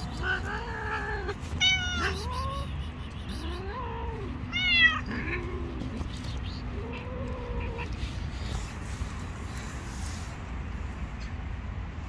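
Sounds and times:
cat meowing: 0.0 - 2.8, 3.4 - 5.9.

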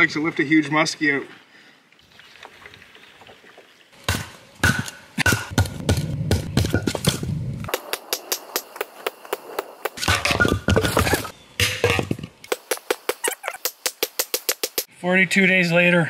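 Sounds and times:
log splitting knocks and thuds: 4.0 - 14.7.

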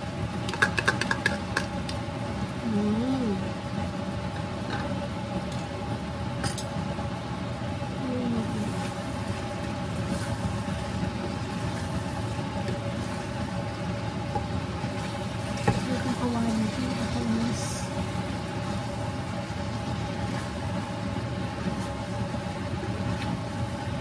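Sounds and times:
steady mechanical hum: 0.0 - 24.0
food stirred in pan: 8.4 - 24.0.

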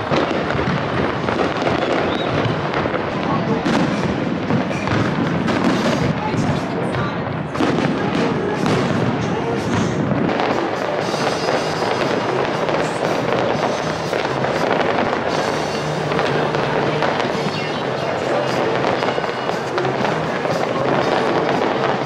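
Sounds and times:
fireworks crackling and banging: 0.0 - 22.0
music playing: 0.0 - 22.0.

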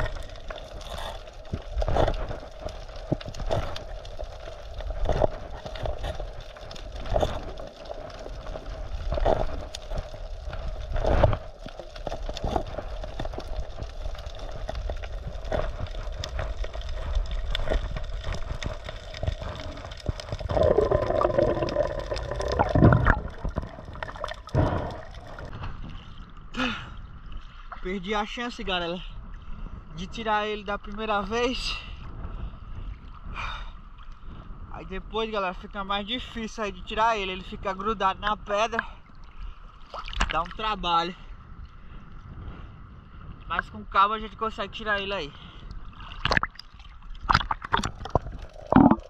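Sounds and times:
bubbling gurgle: 0.0 - 26.9, 45.8 - 49.0
water sloshing and gurgling: 0.0 - 30.1, 30.8 - 34.8, 37.2 - 44.0, 44.8 - 49.0.

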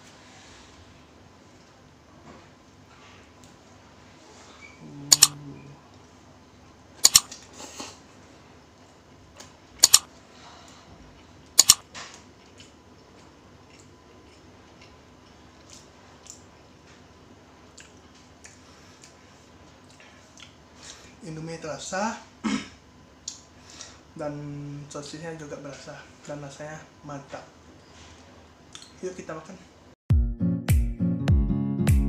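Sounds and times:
sharp double clicks: 5.1 - 5.4, 7.0 - 7.3, 9.8 - 10.1, 11.6 - 11.8
chewing and mouth ticks: 12.4 - 16.5, 17.7 - 19.2, 19.8 - 20.6.

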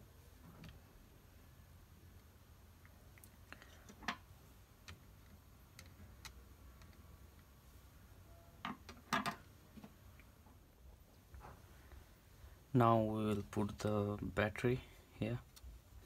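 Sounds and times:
light clicks and taps of handling: 2.1 - 7.5.

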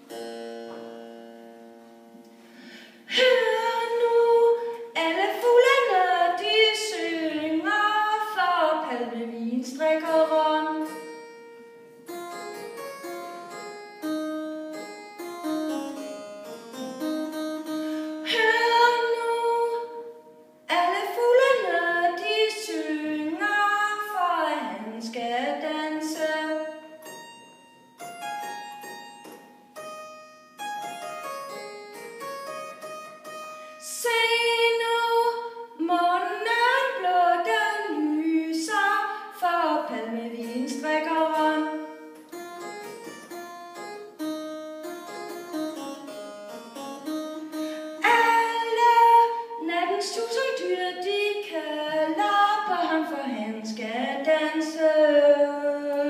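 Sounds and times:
woman singing blues: 3.1 - 10.9, 18.2 - 20.1, 20.7 - 26.8, 33.8 - 41.9, 48.0 - 56.0
plucked harpsichord chords: 9.8 - 20.1, 25.5 - 35.6, 39.9 - 52.7.

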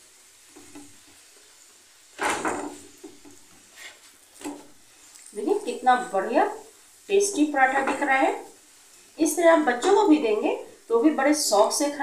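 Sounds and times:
spatula knocking on griddle: 2.2 - 3.4, 7.3 - 8.1.

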